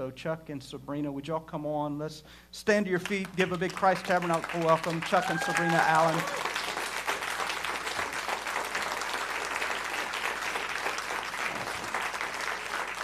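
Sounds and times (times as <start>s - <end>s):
crowd applauding: 3.0s - 13.0s.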